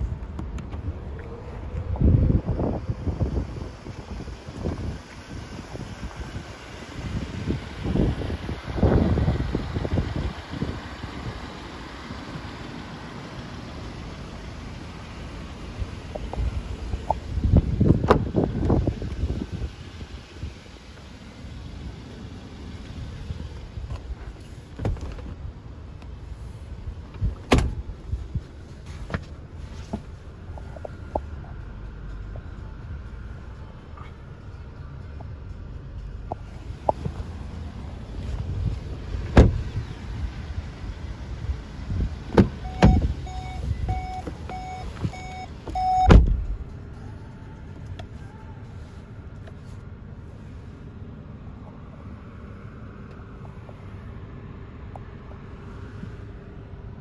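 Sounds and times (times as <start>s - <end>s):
wind noise: 0.0s - 11.4s, 15.8s - 20.6s
car door shutting: 17.8s - 19.2s, 23.8s - 25.4s, 27.1s - 27.9s, 39.1s - 39.8s, 42.2s - 46.6s
car door latch click: 27.2s - 27.8s, 39.3s - 39.6s, 46.0s - 46.5s
car door shutting thud: 27.2s - 27.8s, 39.2s - 39.7s, 42.3s - 43.1s, 46.0s - 46.6s
warning chime beeping: 42.6s - 46.1s.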